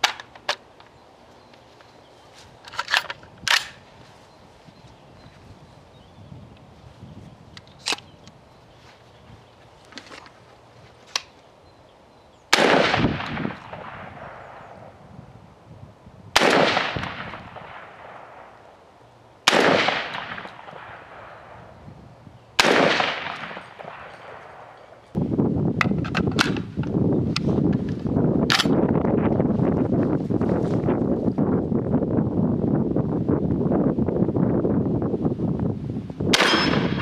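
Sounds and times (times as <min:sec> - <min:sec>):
gun handling clicks: 0:00.0 - 0:00.9, 0:02.6 - 0:03.8, 0:07.5 - 0:08.4, 0:11.0 - 0:11.4, 0:25.8 - 0:28.8
wind buffeting microphone: 0:02.4 - 0:10.9, 0:11.7 - 0:18.5, 0:19.5 - 0:37.0
shotgun shots echoing: 0:12.5 - 0:14.8, 0:16.4 - 0:18.7, 0:19.4 - 0:21.7, 0:22.6 - 0:25.0, 0:36.3 - 0:37.0.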